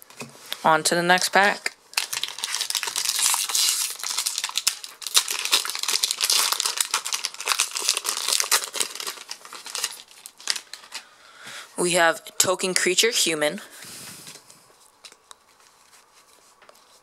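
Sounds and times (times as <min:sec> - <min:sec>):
foil wrapper crinkling: 0:01.4 - 0:11.1.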